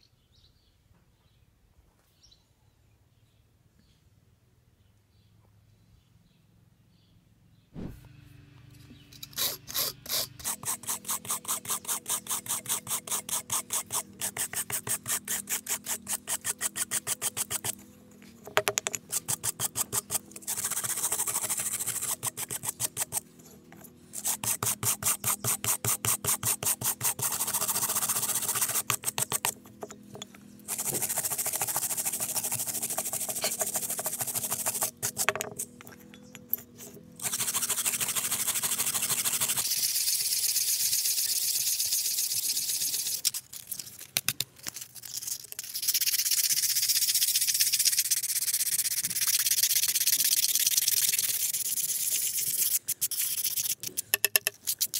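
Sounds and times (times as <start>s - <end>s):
wire brush scrubbing metal: 9.2s - 17.8s, 18.8s - 35.8s, 36.7s - 41.2s, 47.8s - 54.9s.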